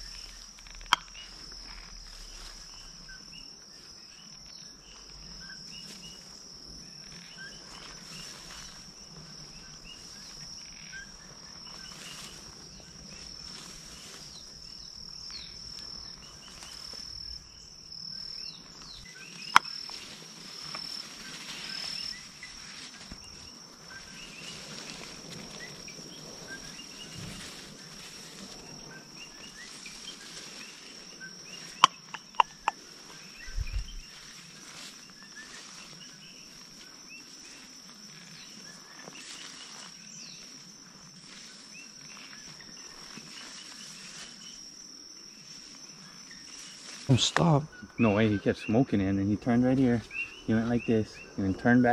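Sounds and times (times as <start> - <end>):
faint outdoor hiss: 0.0 - 51.9
high-pitched insect drone: 0.0 - 51.9
short insect chirps: 0.0 - 51.9
sharp clicks: 31.8 - 32.8.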